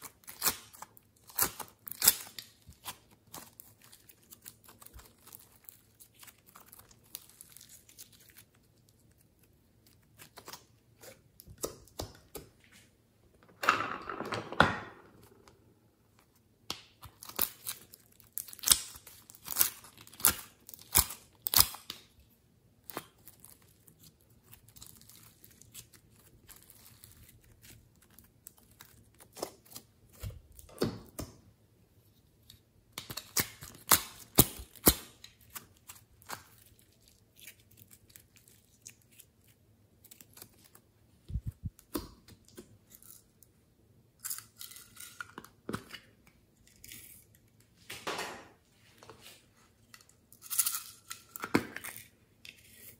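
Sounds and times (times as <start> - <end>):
slime clicking and crackling: 17.0 - 22.1.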